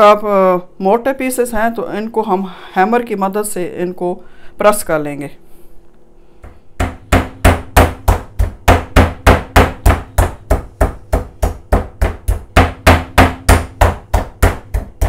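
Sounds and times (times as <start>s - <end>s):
wooden mallet pounding meat: 6.4s - 15.0s.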